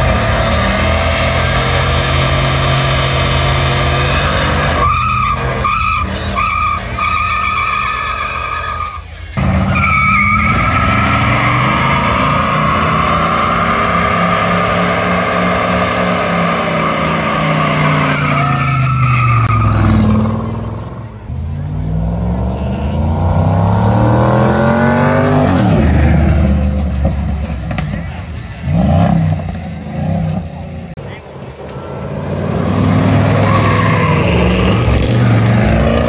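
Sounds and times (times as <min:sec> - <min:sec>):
tyres spinning and squealing: 0:00.0 - 0:21.3, 0:30.4 - 0:36.0
car engine revving: 0:00.0 - 0:36.0.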